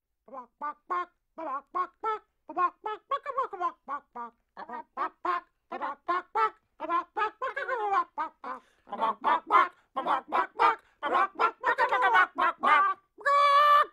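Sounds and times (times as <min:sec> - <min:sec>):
chicken clucking: 0:03.6 - 0:13.0.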